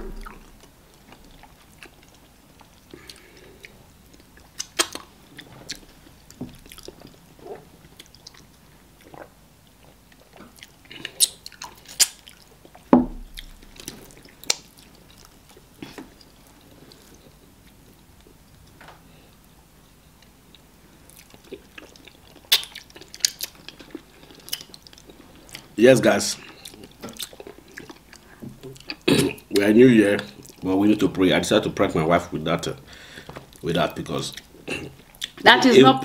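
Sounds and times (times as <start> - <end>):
dull thump: 0.0 - 0.6, 12.9 - 13.5
wet chewing and lip smacks: 0.1 - 6.0, 6.6 - 18.3, 20.2 - 25.7, 26.4 - 29.1.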